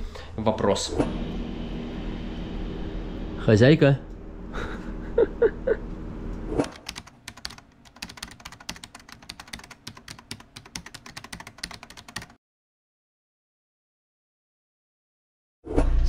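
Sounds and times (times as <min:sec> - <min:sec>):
keyboard typing clicks: 0:06.6 - 0:12.4.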